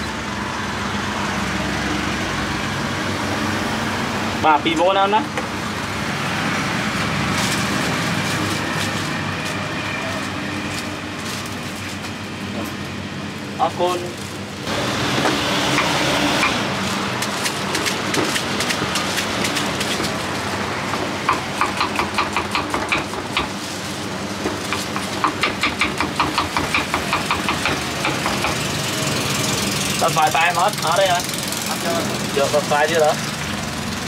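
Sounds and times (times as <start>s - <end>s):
knife chopping on wooden board: 20.9s - 23.6s, 24.7s - 28.6s.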